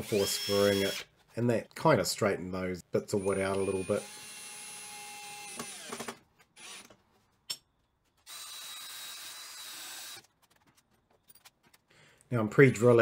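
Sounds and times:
cordless drill driving screws: 0.0 - 1.1, 3.2 - 7.0, 8.3 - 10.3.

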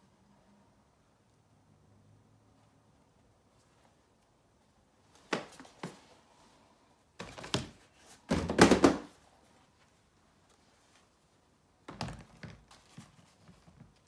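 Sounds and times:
sneakers and shoebox knocking: 8.3 - 9.1.

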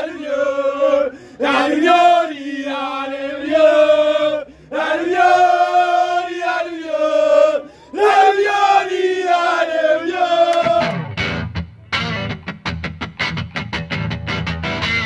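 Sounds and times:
men singing a chant: 0.0 - 11.0.

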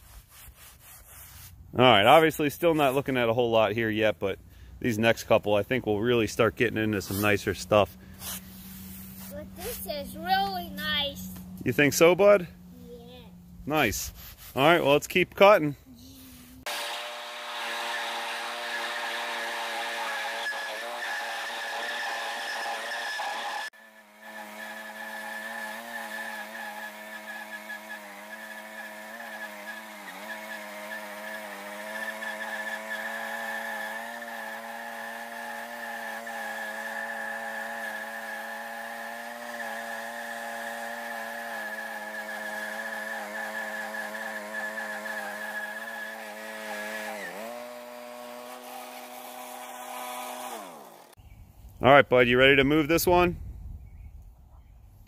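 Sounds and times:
band blade cutting log: 0.0 - 1.6, 6.8 - 9.9, 16.6 - 51.2
sawmill engine running under load: 16.7 - 51.2.

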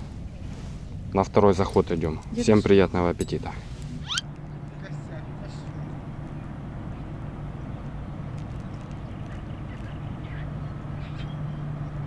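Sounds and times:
steady low drone: 3.2 - 12.0
faint bird calls: 4.0 - 11.8.

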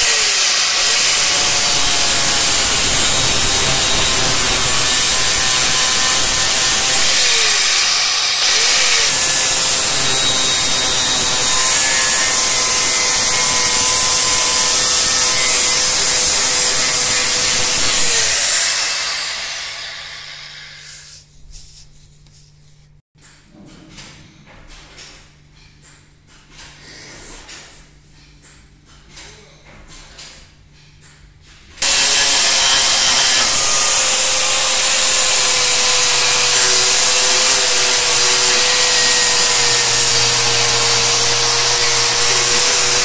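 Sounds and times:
grinder disc spinning down: 0.0 - 20.8, 31.8 - 43.0
angle grinder grinding steel: 0.0 - 21.2, 31.8 - 43.0.

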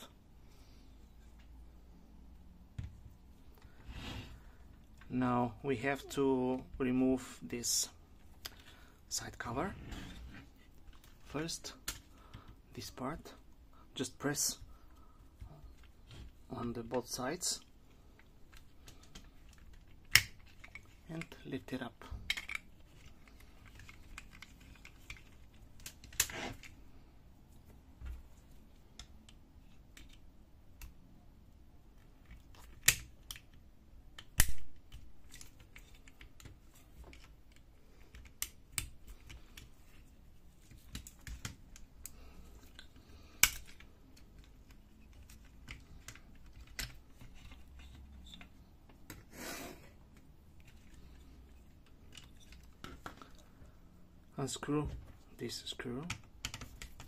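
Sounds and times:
plastic parts clicking and snapping: 10.6 - 12.6, 14.6 - 26.8, 28.0 - 31.0, 32.0 - 49.3, 50.1 - 53.6, 55.7 - 57.0.

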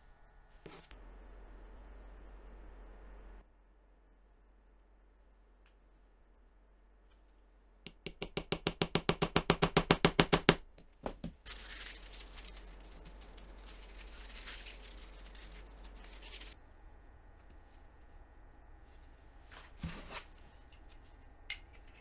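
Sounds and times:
paper towel rubbing on metal: 11.5 - 16.6.

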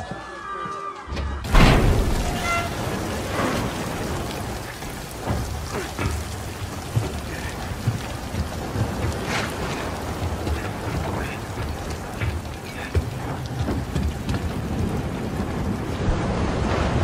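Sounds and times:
low thuds and knocks: 1.4 - 16.5
heavy rain: 1.4 - 17.0.

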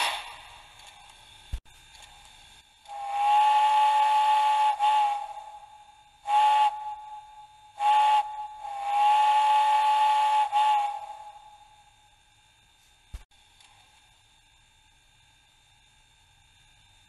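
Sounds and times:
steam locomotive whistle: 0.0 - 0.6, 2.8 - 12.0.

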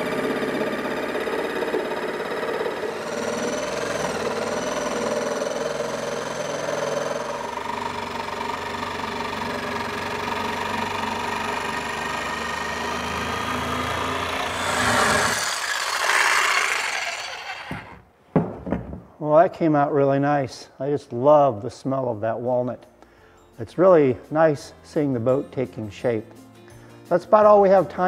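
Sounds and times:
jigsaw cutting wood: 0.0 - 18.0.

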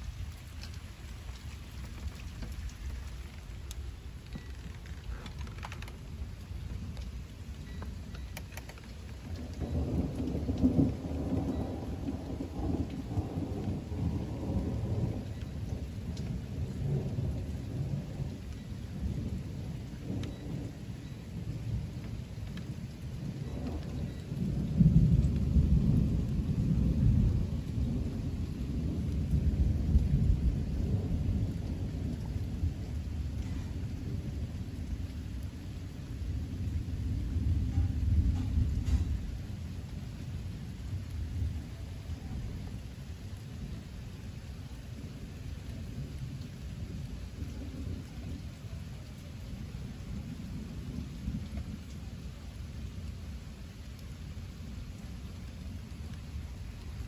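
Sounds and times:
thunder rolling: 0.0 - 43.9
steady rain: 0.0 - 57.0.

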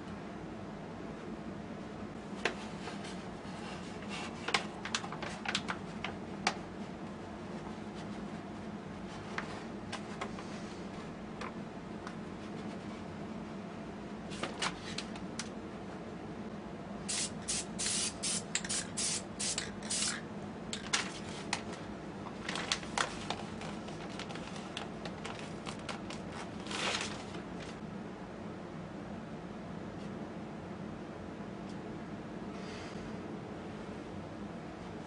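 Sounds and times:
steady low hum: 0.0 - 35.0
spray paint can hissing: 17.1 - 20.2.

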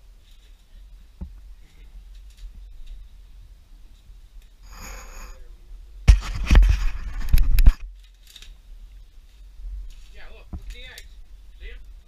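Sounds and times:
wooden debris scraping camera: 6.1 - 8.6.

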